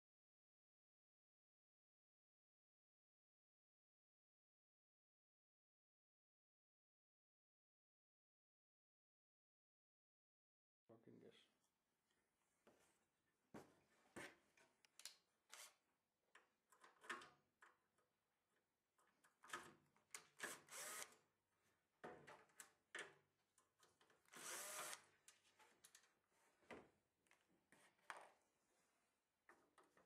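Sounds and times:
faint cordless drill driving screws: 0:20.4 - 0:21.2, 0:24.3 - 0:25.1.

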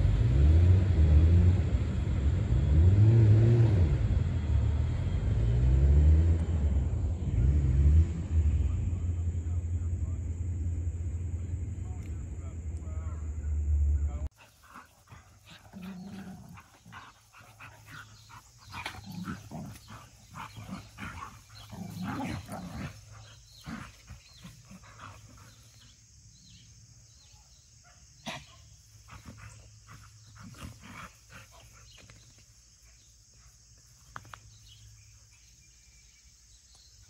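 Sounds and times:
dogs play-fighting and growling: 0:14.3 - 0:26.0, 0:28.2 - 0:32.4.

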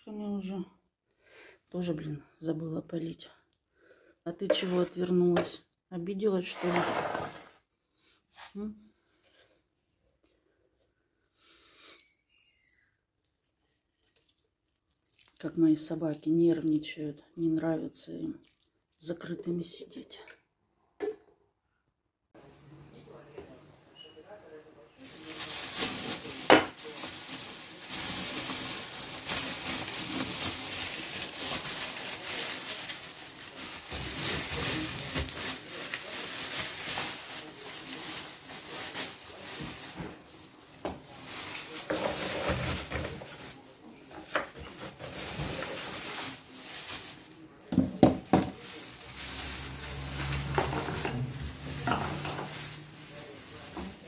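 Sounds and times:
clatter of pots and dishes: 0:50.5 - 0:52.7.

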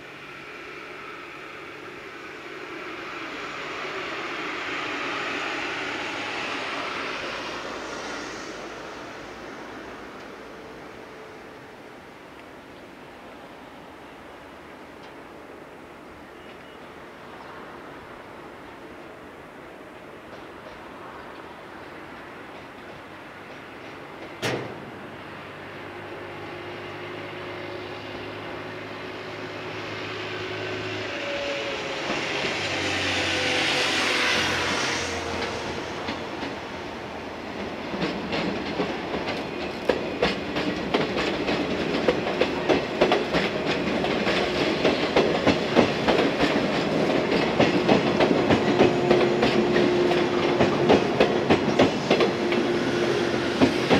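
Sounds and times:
electric train passing: 0:00.0 - 0:53.9
wheels clacking over rail joints: 0:20.2 - 0:24.9, 0:34.3 - 0:53.9.

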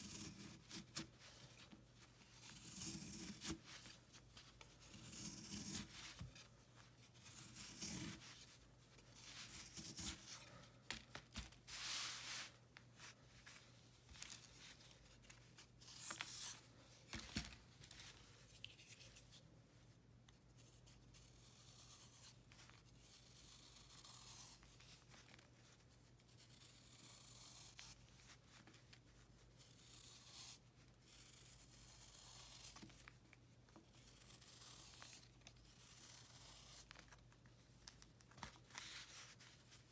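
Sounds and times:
knife scraping chalky block: 0:00.0 - 0:01.1, 0:02.4 - 0:03.9, 0:04.9 - 0:06.4, 0:07.2 - 0:08.4, 0:26.4 - 0:28.0.

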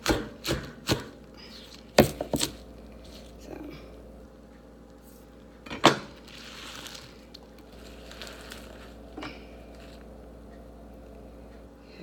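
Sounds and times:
leaves rustling: 0:06.2 - 0:09.1.

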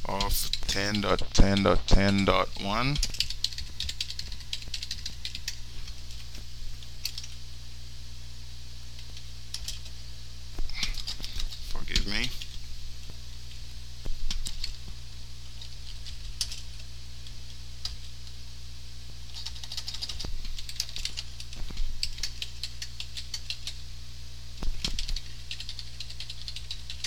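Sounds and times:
steady low hum: 0:00.0 - 0:27.0
typing on computer keyboard: 0:03.0 - 0:06.3, 0:15.6 - 0:16.6, 0:19.3 - 0:23.8, 0:24.7 - 0:27.0.

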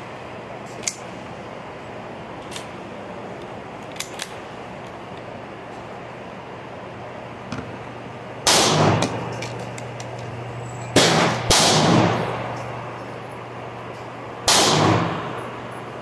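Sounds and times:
gunshots with echoing tails: 0:08.4 - 0:09.4, 0:11.0 - 0:12.5, 0:14.4 - 0:15.4.

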